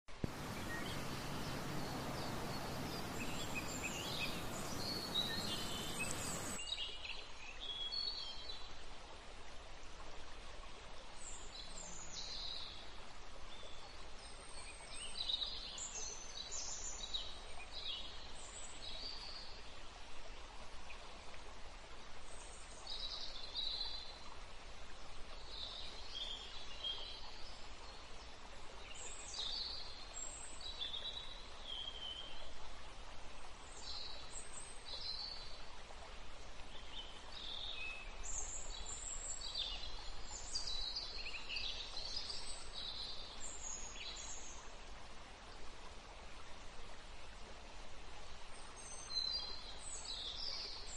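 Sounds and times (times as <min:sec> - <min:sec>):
steady hiss: 0:00.1 - 0:06.6
birds chirping: 0:00.2 - 0:06.6.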